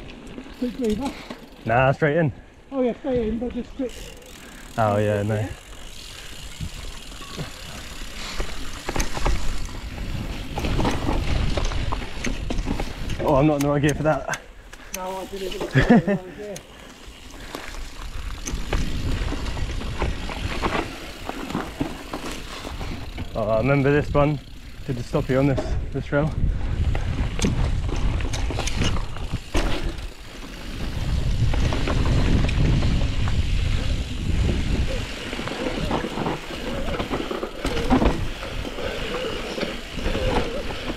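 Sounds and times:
bike clicks and rattles: 0.0 - 2.1, 3.1 - 40.9
bike tyre rumble on dirt: 2.8 - 13.8, 15.1 - 40.9
wind buffeting microphone: 17.9 - 21.3, 22.5 - 37.1.

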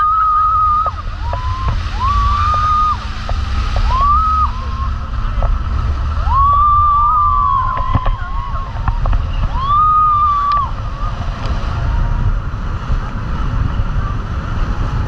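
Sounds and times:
people screaming: 0.0 - 3.2, 3.8 - 5.4, 6.0 - 12.5
water spray: 0.0 - 6.2
rumbling wind: 0.0 - 15.0.

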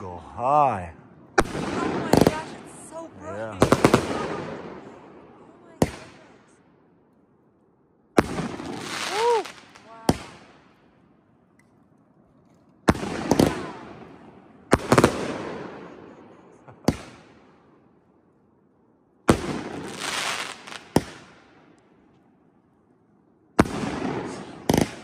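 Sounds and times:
firework bangs echoing: 1.4 - 6.6, 8.1 - 11.1, 12.8 - 17.8, 19.2 - 21.8, 23.6 - 25.0
noisy firework burst: 1.4 - 6.6, 8.1 - 11.1, 12.8 - 17.8, 19.2 - 21.8, 23.6 - 25.0.

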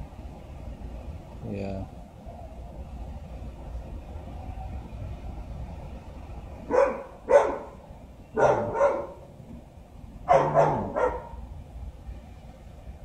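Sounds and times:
dog barking: 6.7 - 7.8, 8.4 - 9.3, 10.3 - 11.4.

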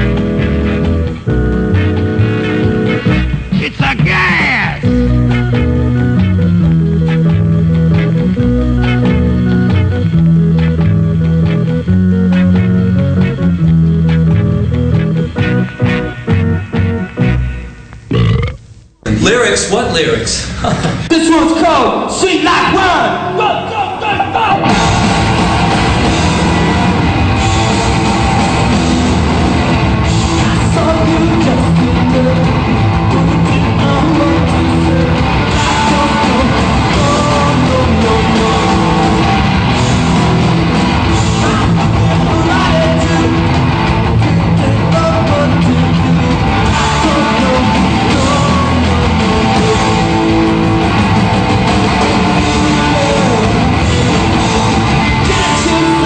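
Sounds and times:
electric guitar: 0.0 - 18.9, 23.2 - 56.0
drums: 0.0 - 56.0
person singing: 30.2 - 39.6, 41.1 - 43.6, 44.4 - 50.8, 51.7 - 56.0.

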